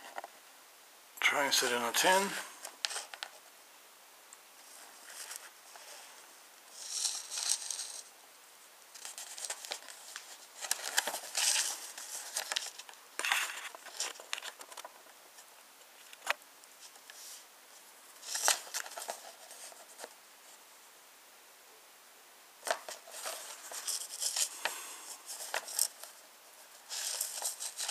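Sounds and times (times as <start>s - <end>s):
paper rustling and crinkling: 2.1s - 3.4s, 4.6s - 8.1s, 9.0s - 20.2s, 22.6s - 27.9s.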